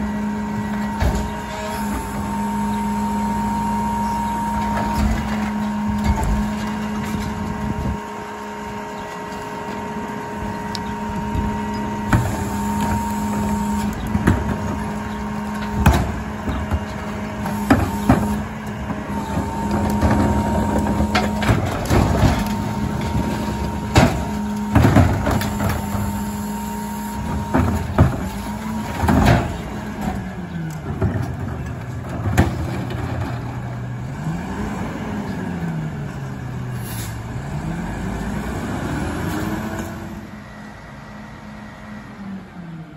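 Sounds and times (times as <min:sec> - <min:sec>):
constant whine: 0:00.0 - 0:33.8
garbage truck engine running: 0:00.0 - 0:42.9
recyclables crashing into hopper: 0:11.2 - 0:33.9.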